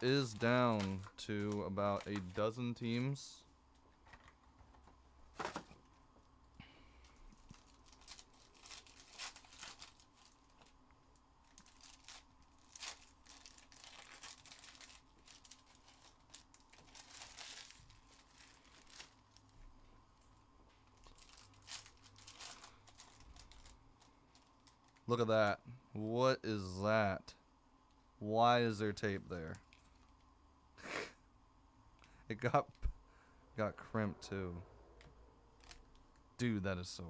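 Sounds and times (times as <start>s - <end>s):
packaging tearing and crinkling: 0.0s - 2.4s, 7.4s - 10.8s, 11.4s - 19.5s, 21.0s - 25.0s, 35.6s - 36.0s.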